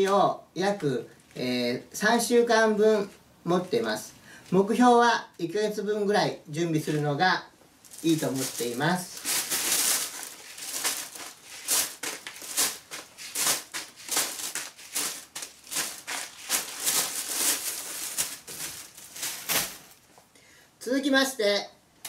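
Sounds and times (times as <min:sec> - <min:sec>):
foil pouches crinkling: 0:07.8 - 0:20.1
plastic bag rustling: 0:07.8 - 0:20.2.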